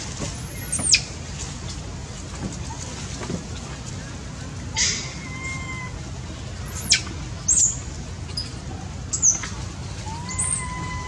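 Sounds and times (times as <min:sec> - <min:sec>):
baby monkey crying: 0:10.0 - 0:11.0.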